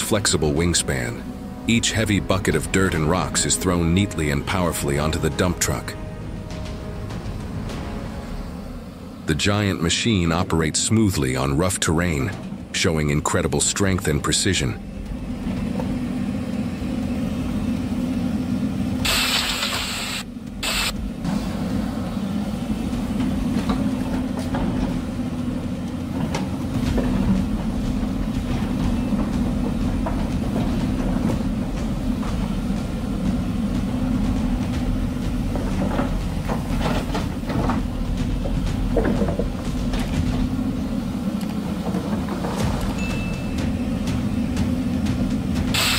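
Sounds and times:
excavator diesel engine rumbling: 0.0s - 45.9s
hiss: 19.0s - 21.0s.

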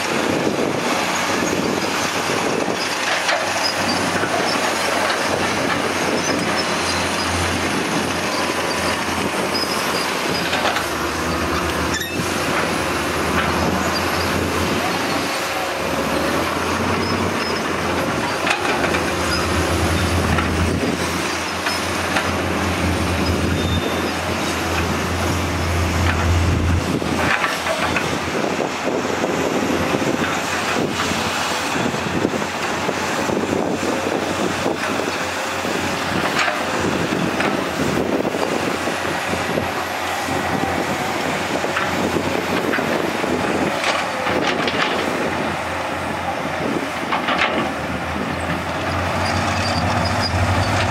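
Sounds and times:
excavator diesel engines: 0.0s - 50.9s
bucket and track clanks: 1.0s - 33.3s, 34.0s - 50.9s
deep engine hum: 5.4s - 27.4s, 37.7s - 50.9s.

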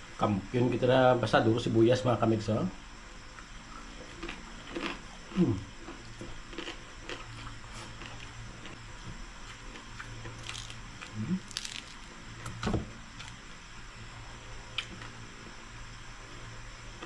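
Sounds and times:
chewing: 3.4s - 8.8s
crackles of crisp skin bitten: 4.1s - 5.0s, 9.5s - 12.1s, 13.2s - 13.4s
low mouth noises: 5.3s - 5.7s, 11.1s - 11.6s.

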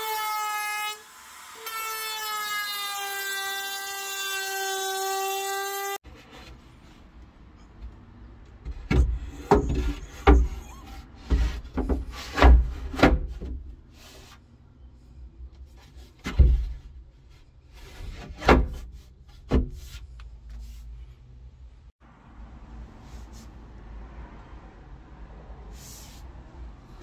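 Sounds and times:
panels scraping: 8.7s - 14.5s.

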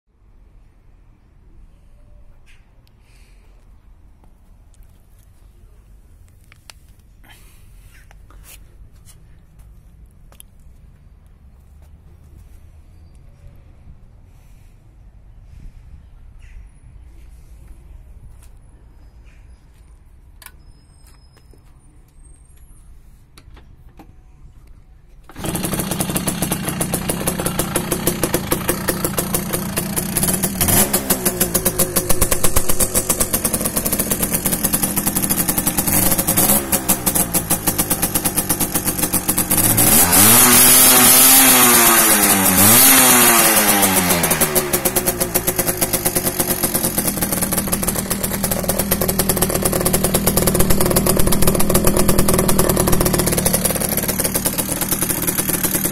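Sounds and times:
moped engine revving: 25.3s - 55.9s.

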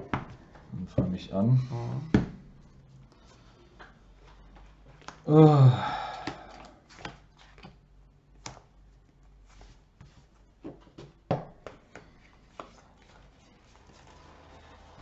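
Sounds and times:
cards rustling: 12.0s - 15.0s.

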